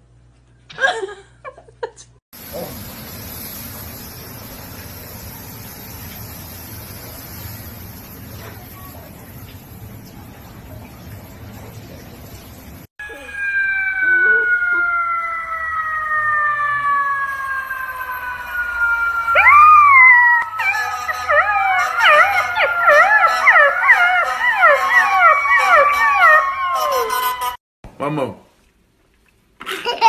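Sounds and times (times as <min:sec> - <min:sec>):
puppy howling: 0:13.0 - 0:27.6
siren wailing: 0:13.0 - 0:27.6.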